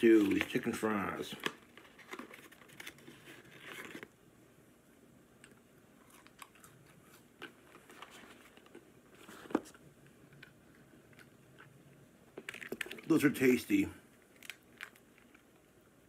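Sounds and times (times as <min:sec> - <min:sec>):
paper carton rustling: 0:00.0 - 0:04.1.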